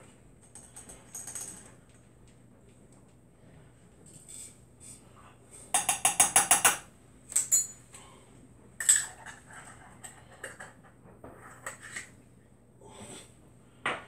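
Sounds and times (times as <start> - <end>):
metal spoon clinking on glass dish: 7.4 - 7.8.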